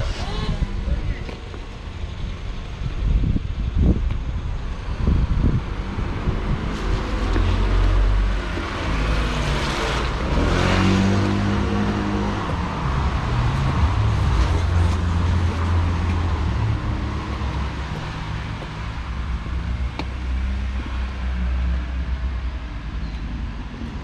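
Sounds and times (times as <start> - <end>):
steady engine hum: 0.0 - 24.0
motor vehicle passing by: 5.4 - 21.8.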